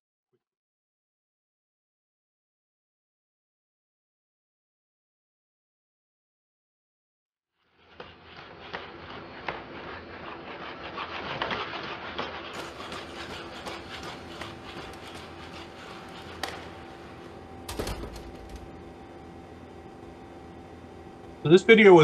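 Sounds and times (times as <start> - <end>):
door shutting knock: 17.7 - 18.7.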